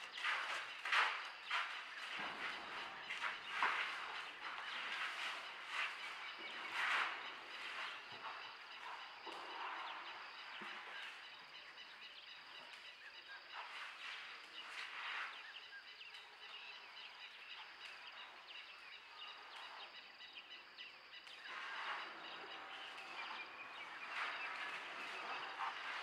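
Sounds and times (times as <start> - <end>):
birds chirping and calling: 15.4 - 26.0.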